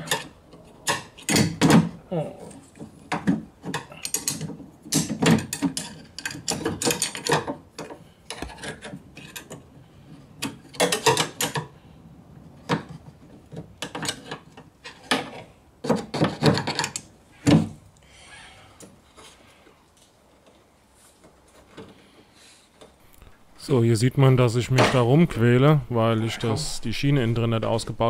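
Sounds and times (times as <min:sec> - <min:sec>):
screwdriver scraping and rattling: 0:03.6 - 0:11.6, 0:12.7 - 0:17.1.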